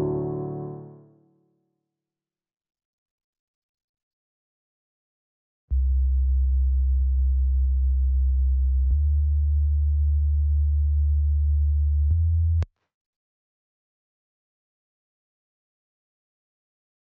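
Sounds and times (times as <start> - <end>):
low sub-bass sine tone: 5.7 - 12.7.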